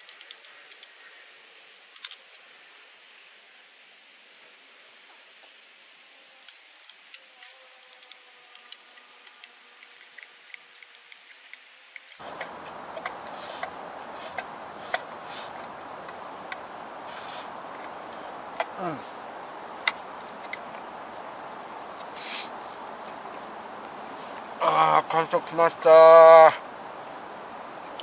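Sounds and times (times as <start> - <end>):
steady hiss: 0.0 - 28.0.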